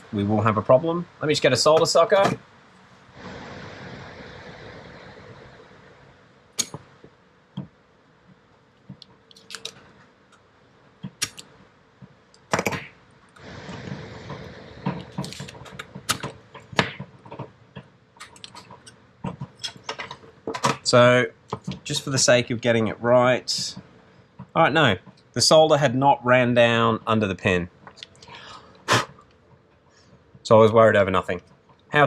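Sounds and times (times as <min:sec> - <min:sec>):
soft hissing: 0:01.5 - 0:07.2, 0:12.8 - 0:17.2, 0:27.5 - 0:29.3.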